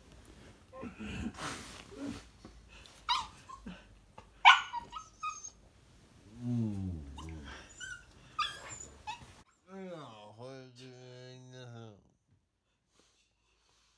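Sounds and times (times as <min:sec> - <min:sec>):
puppy yipping and barking: 0:03.1 - 0:03.6, 0:04.4 - 0:05.6, 0:07.8 - 0:09.3
low falling groan: 0:06.2 - 0:07.7.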